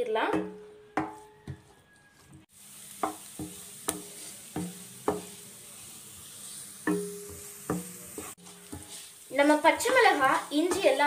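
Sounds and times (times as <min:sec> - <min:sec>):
wooden spatula knocking pan: 0:00.2 - 0:01.8, 0:03.0 - 0:05.4, 0:06.8 - 0:08.9, 0:09.6 - 0:11.0
sizzling in oil: 0:01.0 - 0:11.0.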